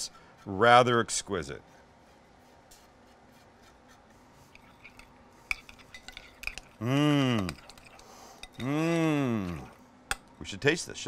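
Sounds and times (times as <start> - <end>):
metal spoon tapping glass bowl: 4.9 - 6.8, 7.4 - 8.7
person making short voiced sound: 6.8 - 7.6, 8.6 - 9.8.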